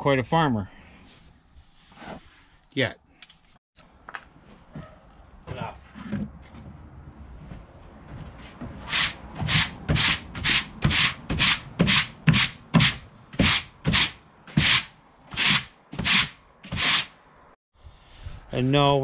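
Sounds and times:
push broom sweeping rubber mat: 8.1 - 17.2.

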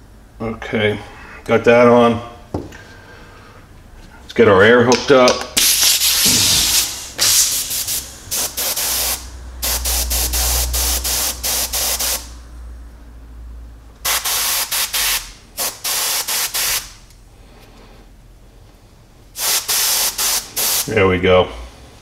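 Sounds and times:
airbrush air hissing in bursts: 5.6 - 12.4, 14.0 - 17.1, 19.3 - 21.0.

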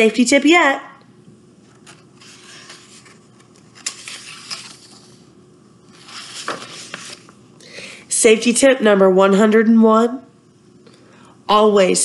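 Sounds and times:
paper pages rustling: 1.6 - 7.4.

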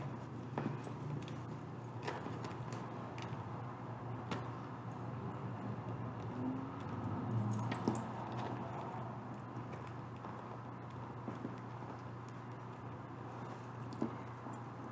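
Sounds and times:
key jangling and scraping: 0.0 - 3.5, 6.8 - 9.9
steady low hum: 0.0 - 14.9.

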